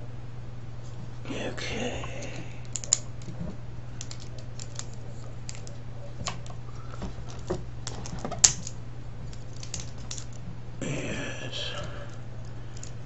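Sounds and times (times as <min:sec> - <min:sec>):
steady low hum: 0:00.0 - 0:13.0
plastic and metal parts clicking: 0:02.7 - 0:03.3, 0:04.0 - 0:06.5, 0:07.3 - 0:10.4
sharp plastic snap: 0:08.0 - 0:08.8.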